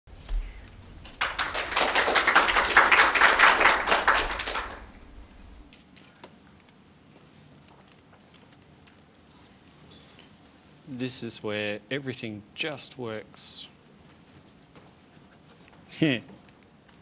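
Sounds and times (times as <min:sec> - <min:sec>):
audience applause: 0:01.0 - 0:05.5.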